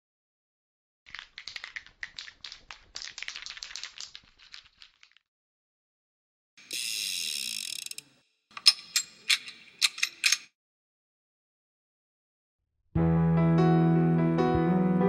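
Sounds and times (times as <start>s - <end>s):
sharp clicks and crackles: 1.1s - 5.2s.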